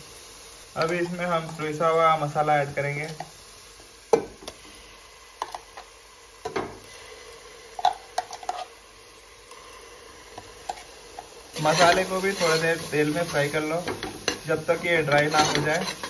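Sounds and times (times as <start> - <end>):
oil sizzling: 0.0 - 16.0
metal spoon scraping steel jar: 15.1 - 16.0.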